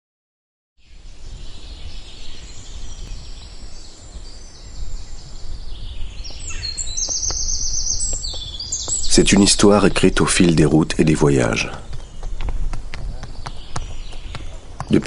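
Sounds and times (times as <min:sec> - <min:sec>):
bird trill: 0:00.8 - 0:10.3, 0:13.2 - 0:15.0
birds chirping: 0:00.8 - 0:15.0.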